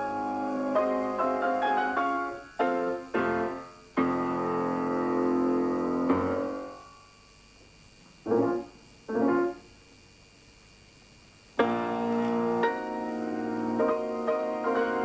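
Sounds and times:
keyboard chords: 11.6 - 15.0.

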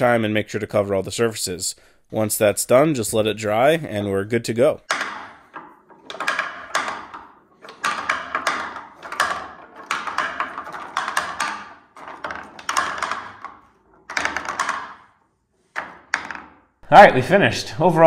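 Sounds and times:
wooden balls clattering on ramps: 4.7 - 16.8.

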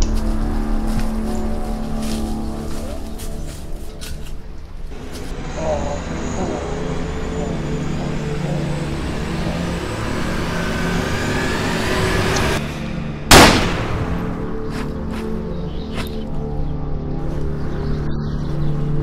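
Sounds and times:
film score music: 0.0 - 19.0
loud gunshot: 13.3 - 14.6.

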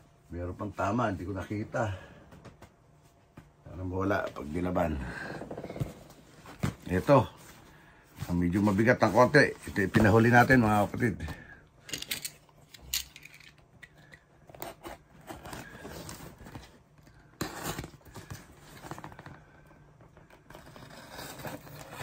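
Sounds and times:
cardboard scraping and handling: 20.2 - 22.0.

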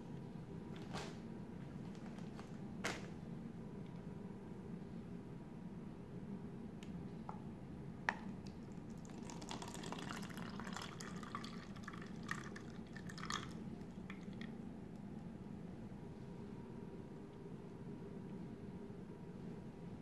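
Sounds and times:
juice pouring and splattering: 8.4 - 14.5.

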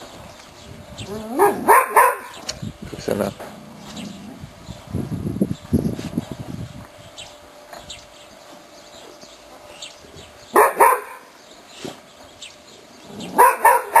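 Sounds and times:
dog barking: 1.4 - 2.4, 10.5 - 11.3, 13.3 - 14.0.

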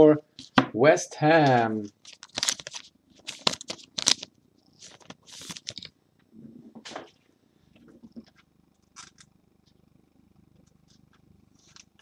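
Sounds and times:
trading cards rustling: 1.4 - 5.9, 10.8 - 12.0.

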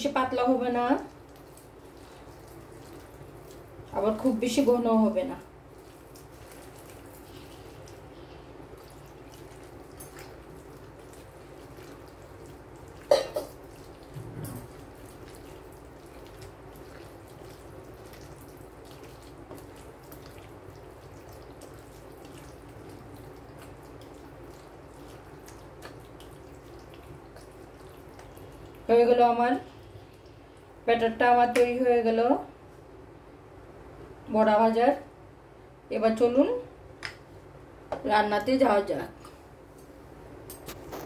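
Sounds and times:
hand squelching wet batter: 0.7 - 29.0.

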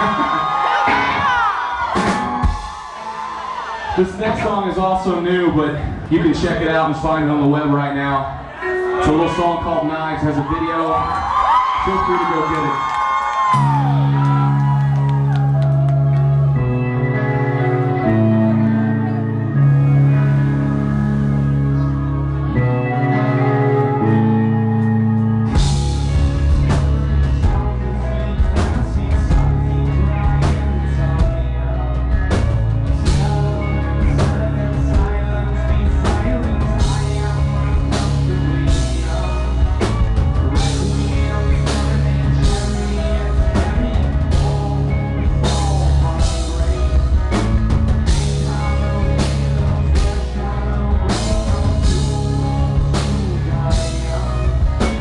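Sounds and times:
bass guitar: 0.0 - 55.0
drums: 0.0 - 55.0
electric guitars: 0.0 - 55.0
rock band playing: 0.0 - 55.0
held guitar chord ringing: 16.5 - 26.5
man singing lead vocals: 25.5 - 55.0.

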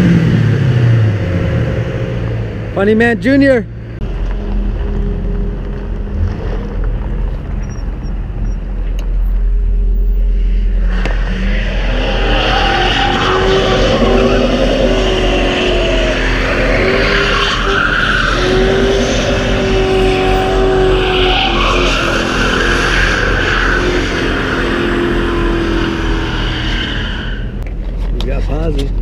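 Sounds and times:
car engine revving hard: 10.9 - 27.4
tyres squealing on pavement: 10.9 - 27.6.

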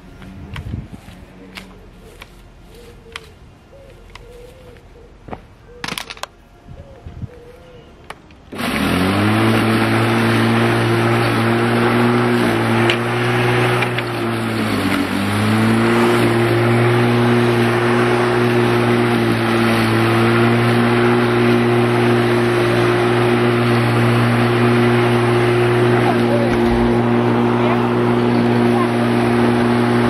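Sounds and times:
electric lawn mower humming: 8.5 - 30.0.

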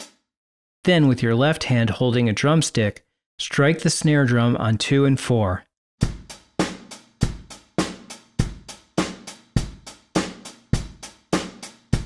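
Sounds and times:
closed hi-hat: 0.0 - 0.2
snare drum: 0.0 - 0.2, 6.0 - 12.0
bass drum: 6.0 - 11.0.

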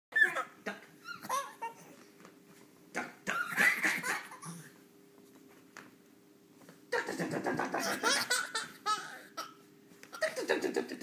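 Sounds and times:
young child giggling: 3.3 - 4.7, 6.9 - 11.0.

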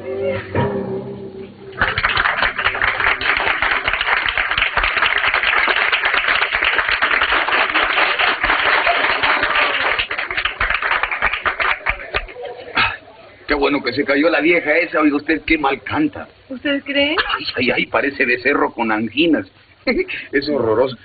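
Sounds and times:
audience applauding: 1.8 - 12.9.

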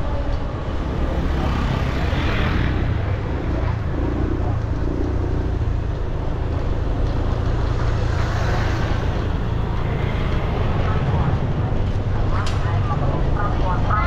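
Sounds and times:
traffic noise: 0.0 - 14.0.

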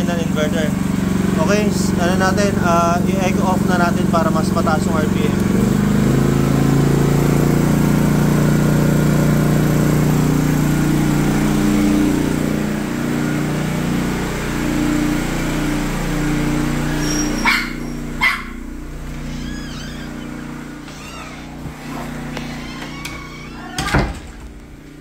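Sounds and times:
generator engine running: 0.0 - 25.0
dog barking: 16.9 - 18.6.

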